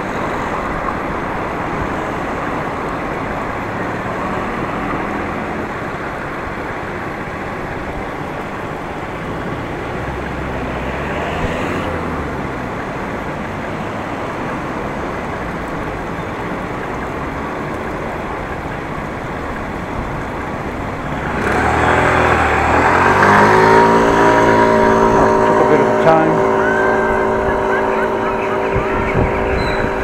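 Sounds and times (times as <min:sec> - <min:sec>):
passing cars: 0:00.0 - 0:30.0
vehicle engine drone: 0:00.0 - 0:30.0.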